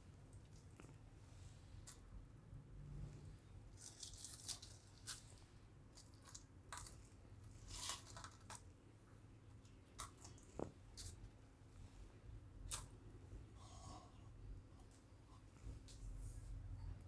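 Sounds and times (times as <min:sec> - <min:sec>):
crisp flatbreads crackling: 0:03.6 - 0:08.8.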